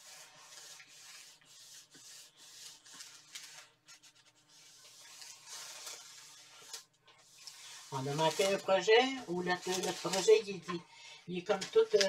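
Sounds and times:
iron scraping on paper: 0.0s - 12.0s.

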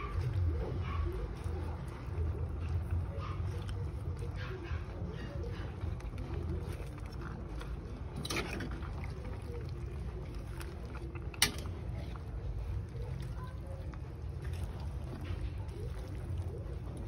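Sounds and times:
soup simmering in a pot: 0.0s - 17.0s.

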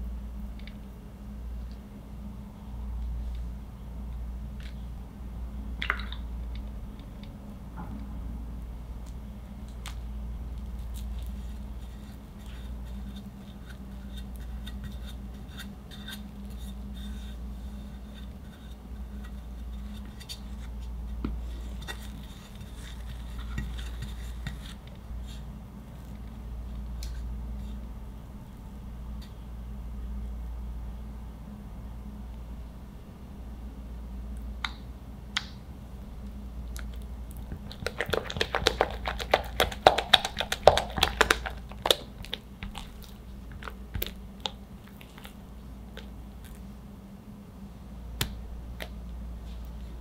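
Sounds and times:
low steady hum: 0.0s - 50.0s
metal spatula scraping frosting: 10.9s - 25.5s.

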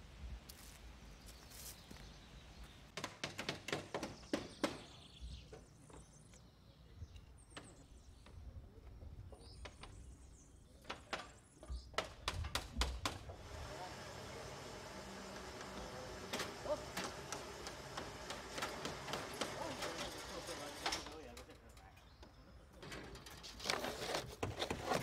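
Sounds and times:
hammer tapping on wooden shingles: 3.0s - 5.0s, 10.8s - 13.3s.

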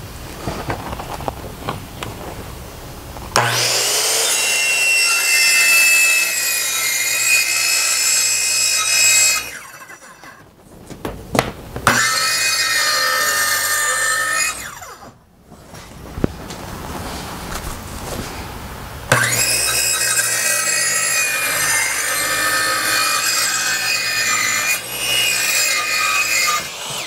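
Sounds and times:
circular saw cutting: 3.4s - 10.4s, 11.8s - 15.2s, 19.1s - 27.0s.

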